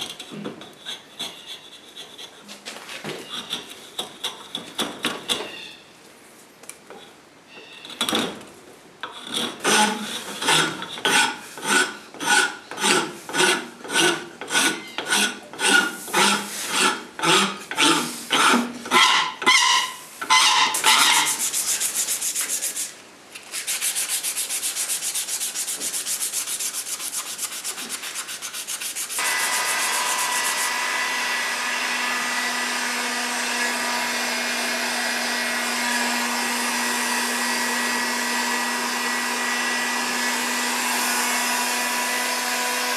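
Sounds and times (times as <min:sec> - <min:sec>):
rasp strokes on wood: 0:00.0 - 0:05.4, 0:09.0 - 0:22.9, 0:23.6 - 0:30.8
hand sanding wood: 0:09.3 - 0:30.9
heat gun blowing: 0:29.2 - 0:32.4.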